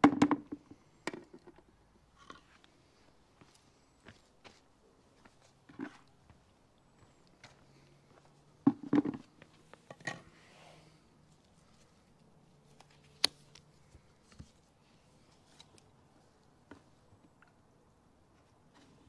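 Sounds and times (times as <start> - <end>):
plastic knocks and clunks: 0.0 - 1.5, 8.6 - 9.2.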